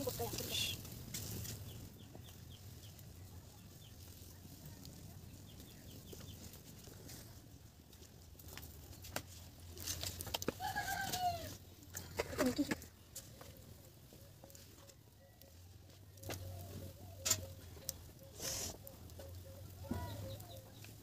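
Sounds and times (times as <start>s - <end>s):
chicken calling: 10.6s - 11.7s, 16.2s - 20.7s.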